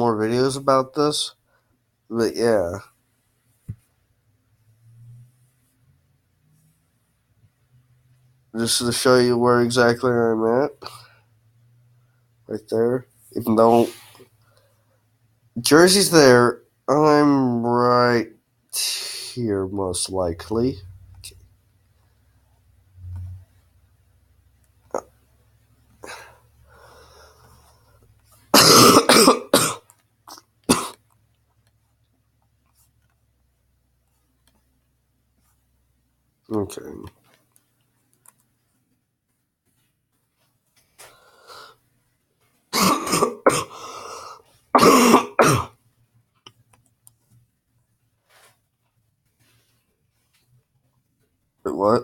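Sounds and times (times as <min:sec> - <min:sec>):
man coughing: 0:28.6 - 0:29.8, 0:30.7 - 0:31.0, 0:42.8 - 0:43.8, 0:44.8 - 0:45.7
man clearing his throat: 0:28.6 - 0:31.0, 0:42.8 - 0:43.8, 0:44.8 - 0:45.8.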